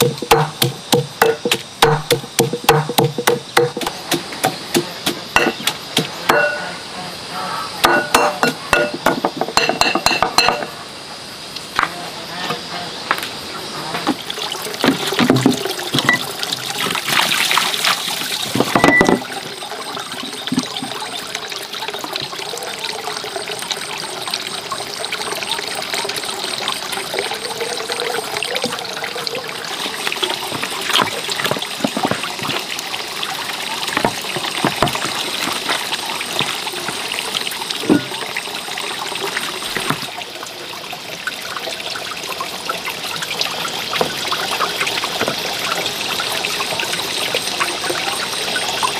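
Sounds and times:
water trickling: 13.0 - 48.9.

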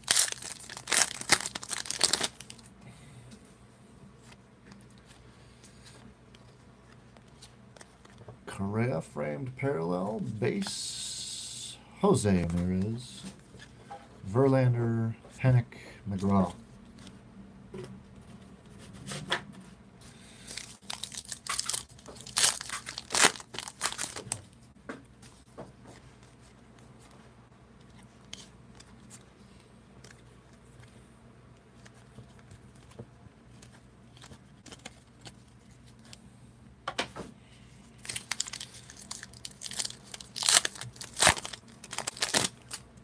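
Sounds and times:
foil wrapper crinkling and tearing: 0.0 - 2.7, 20.5 - 24.4, 38.0 - 42.9.

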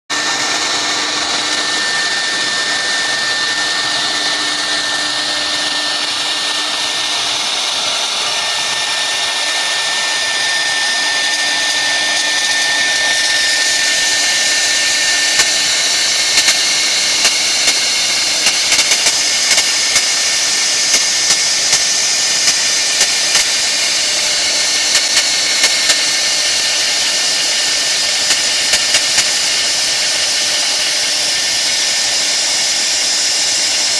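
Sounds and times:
hiss of bit cutting wood: 0.1 - 33.9
router spindle high whine: 0.1 - 33.9
sharp ticks: 13.2 - 20.2, 20.9 - 23.5, 28.2 - 29.4.

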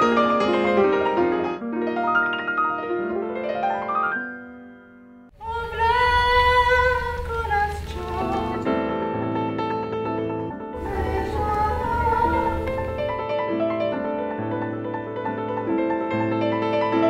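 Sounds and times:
woman singing long note: 5.4 - 8.8, 10.8 - 13.2
piano-like rising notes: 10.7 - 15.6
low rumble: 10.8 - 13.2
keyboard notes: 10.8 - 13.4.

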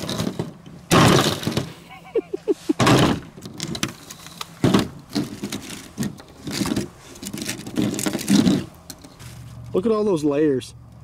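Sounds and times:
plastic pieces scraping and clattering: 0.0 - 1.7, 2.9 - 9.3.

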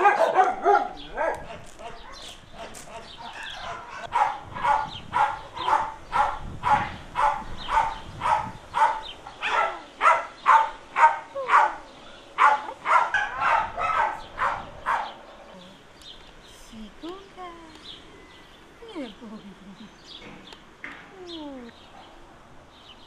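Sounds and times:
dog barking: 0.0 - 15.2.

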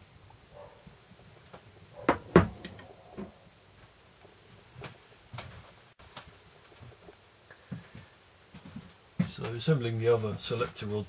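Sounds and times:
metal part knocking on wooden bench: 2.1 - 3.4.

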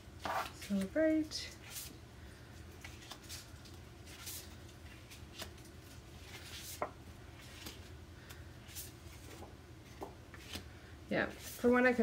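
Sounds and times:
paper cards swishing: 2.8 - 9.5.

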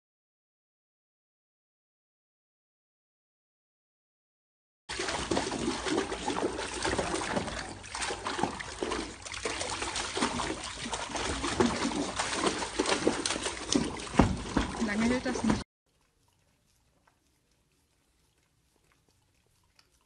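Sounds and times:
dog splashing in water: 4.9 - 16.6.

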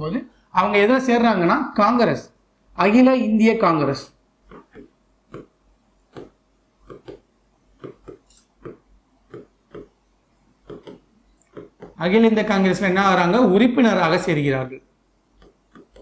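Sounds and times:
pen tapping and scraping on glass: 4.5 - 10.0, 10.6 - 12.0, 15.4 - 16.0.

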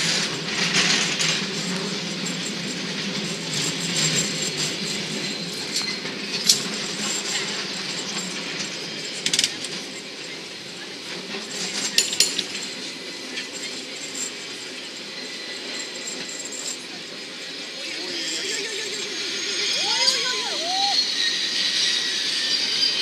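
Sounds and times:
cable car rattling rumble: 0.0 - 23.0
metallic clinks and clanks: 0.1 - 10.0, 11.3 - 17.3.

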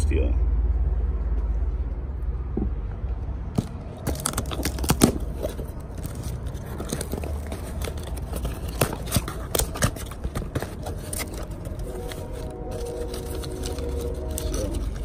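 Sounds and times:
cardboard box crackling and scraping: 3.6 - 15.0.

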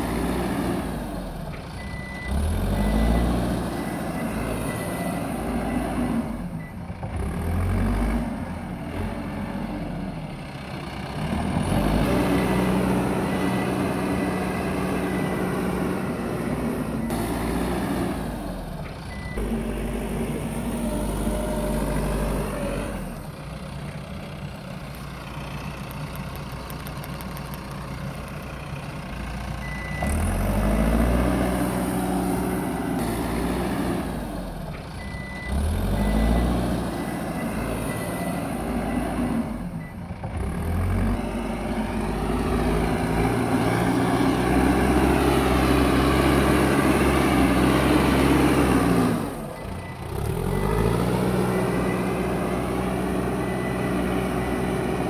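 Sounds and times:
diesel engine revving: 0.0 - 55.0
reversing alarm beeping: 1.8 - 6.8, 12.2 - 17.4, 19.1 - 19.6, 29.6 - 30.9, 35.0 - 40.0, 49.5 - 55.0.

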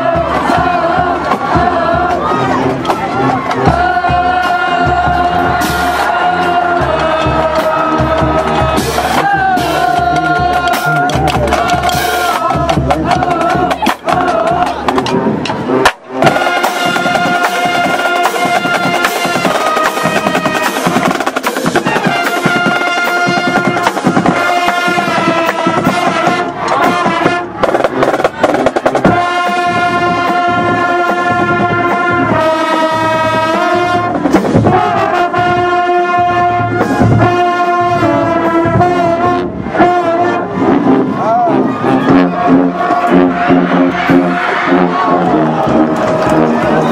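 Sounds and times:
brass chords: 0.0 - 46.9
drum strokes: 0.1 - 35.7.

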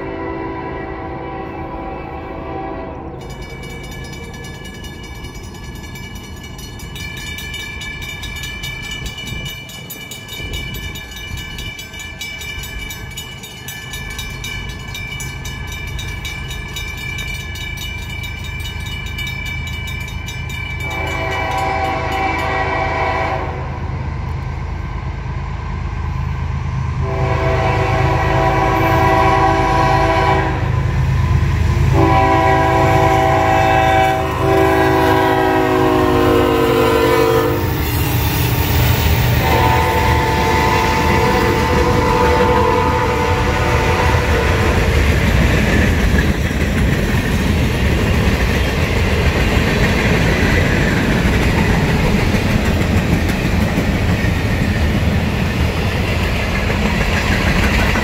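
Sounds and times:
train air horn blasts: 0.0 - 3.3, 20.8 - 23.9, 27.0 - 31.0, 31.9 - 38.0, 39.4 - 45.0
locomotive engines rumbling: 0.0 - 58.0
crossing bell ringing: 1.4 - 23.4.

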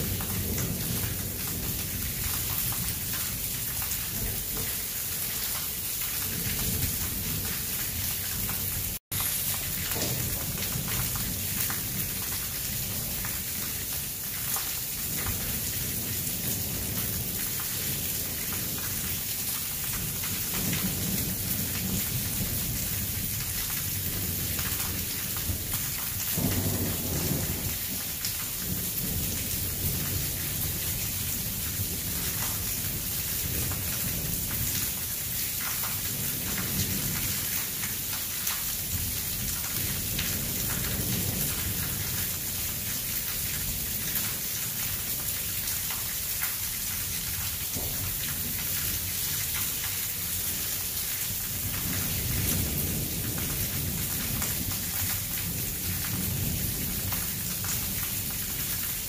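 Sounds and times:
thunder rumbling: 0.0 - 44.4
rain hissing: 0.0 - 59.0.

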